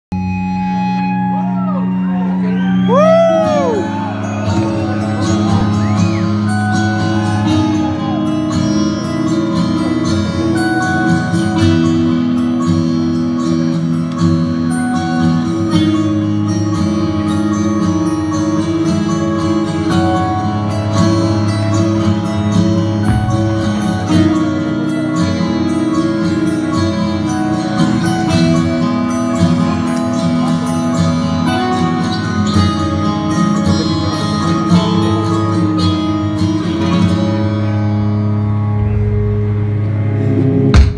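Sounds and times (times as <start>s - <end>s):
live metal band: 0.2s - 40.9s.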